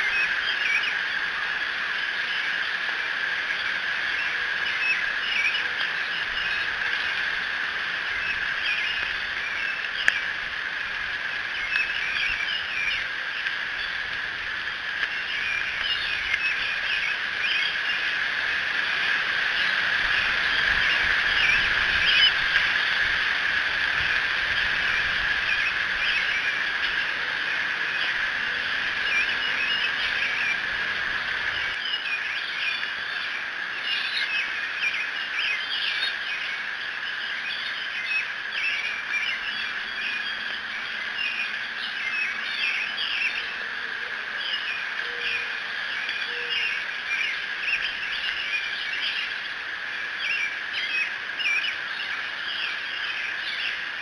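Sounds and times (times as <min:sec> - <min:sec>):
birds chirping and singing: 0:00.0 - 0:02.8, 0:03.4 - 0:10.5, 0:11.3 - 0:54.0
steady high-pitched hum: 0:00.0 - 0:54.0.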